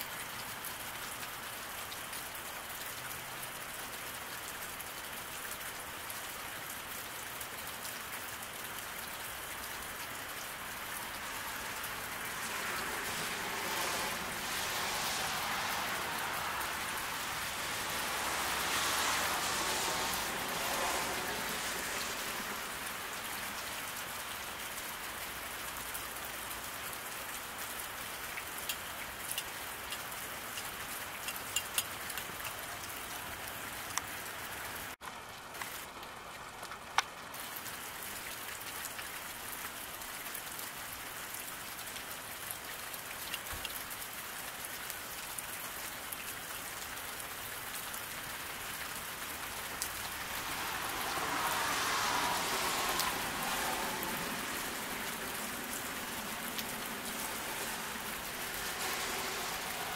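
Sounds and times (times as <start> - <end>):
rain falling on road: 0.0 - 59.9
drip ticks: 28.2 - 33.2, 42.8 - 44.0.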